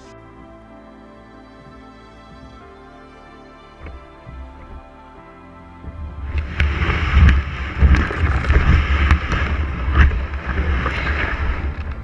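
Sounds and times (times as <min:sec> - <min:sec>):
kayak rustling in long grass: 0:03.8 - 0:12.0.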